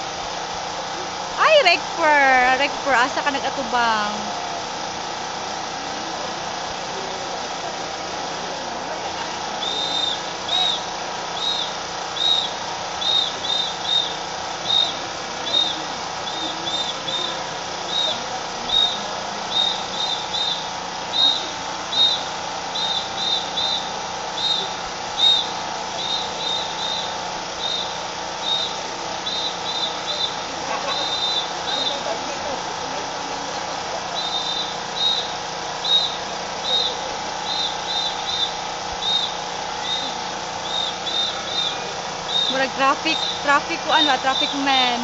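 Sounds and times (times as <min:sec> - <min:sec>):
crowd ambient hum: 0:00.0 - 0:45.0
whistle short high blasts: 0:09.6 - 0:32.0, 0:34.2 - 0:44.9.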